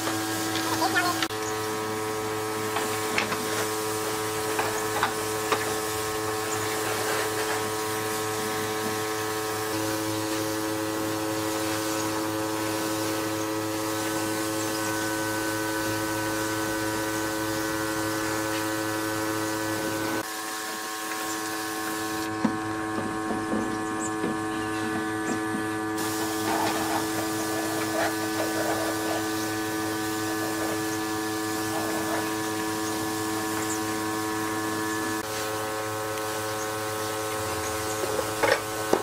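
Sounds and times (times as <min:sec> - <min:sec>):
electric hum with held tones: 0:00.0 - 0:39.0.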